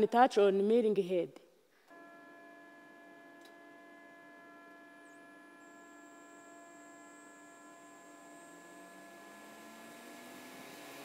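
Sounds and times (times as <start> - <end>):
thin high whine: 1.9 - 11.0.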